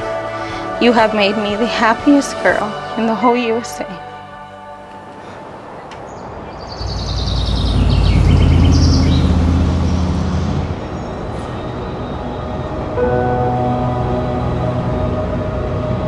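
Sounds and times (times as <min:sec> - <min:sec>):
loud deep rumble: 0:06.7 - 0:11.9
steady music tones: 0:06.8 - 0:16.0
high shimmer sliding downward: 0:12.2 - 0:16.0.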